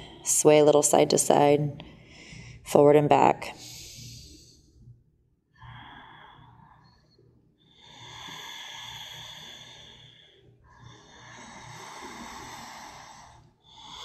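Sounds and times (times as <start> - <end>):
person breathing through nose: 3.6 - 4.6, 7.8 - 14.0.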